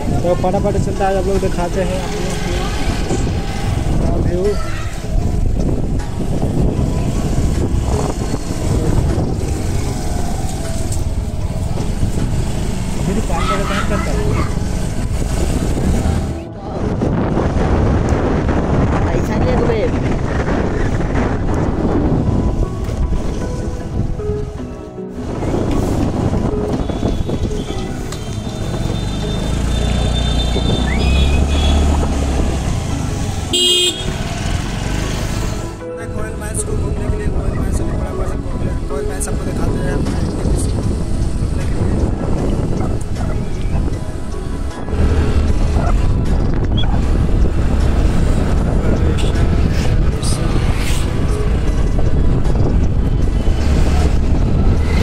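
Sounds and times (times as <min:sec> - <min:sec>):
vehicle engine and road rumble: 0:00.0 - 0:55.0
loud vehicle horn honk: 0:33.5 - 0:34.3.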